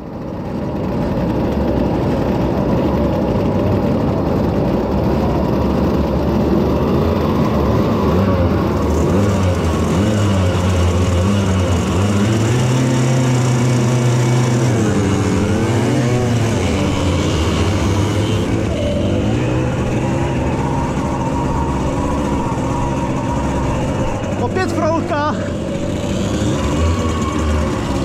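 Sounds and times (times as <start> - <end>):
two-stroke moped engine: 0.0 - 28.0.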